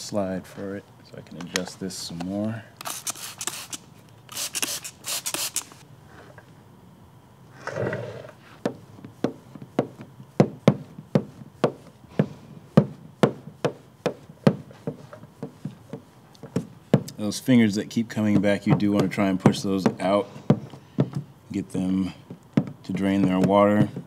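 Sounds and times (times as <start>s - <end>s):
spray bottle spritzes: 2.8s - 5.8s.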